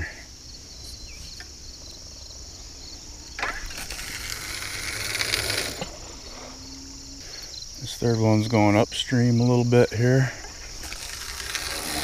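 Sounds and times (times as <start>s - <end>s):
insects chirring: 0.0s - 12.0s
line hissing off reel: 3.4s - 7.5s, 10.4s - 12.0s.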